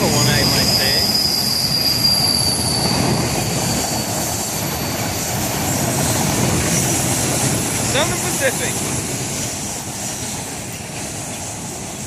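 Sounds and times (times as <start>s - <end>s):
high squeal: 0.0s - 7.2s
train wheels rumbling on rails: 0.0s - 12.0s.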